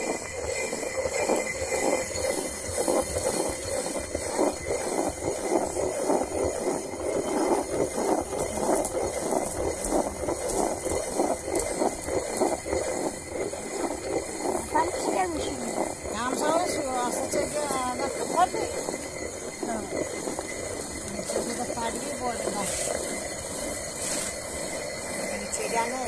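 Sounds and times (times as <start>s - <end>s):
millstone grinding rumble: 0.0s - 26.0s.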